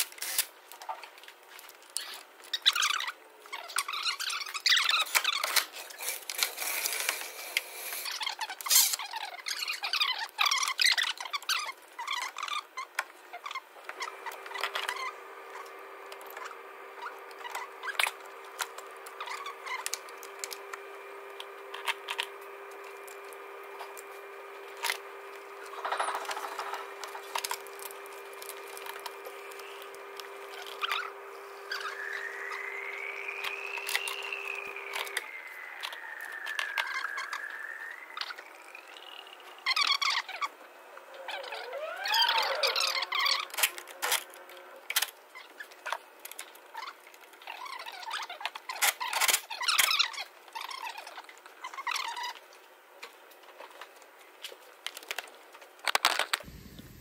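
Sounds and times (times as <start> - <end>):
rapid tool clicks and scrapes: 0.0 - 0.5, 4.8 - 9.1
steady hum: 13.8 - 45.4, 56.3 - 57.0.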